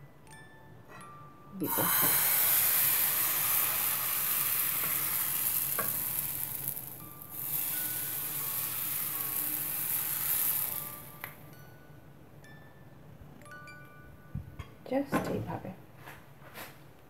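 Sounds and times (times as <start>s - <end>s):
batter sizzling in a frying pan: 1.6s - 11.4s.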